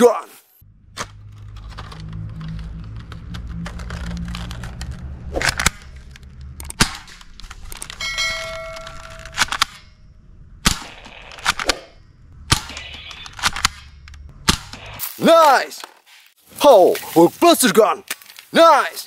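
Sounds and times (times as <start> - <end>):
electronic chime: 8.0 - 9.3.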